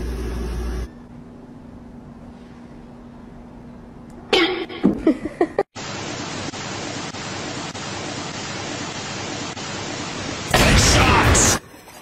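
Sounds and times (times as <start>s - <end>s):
steady hiss: 5.8s - 11.6s.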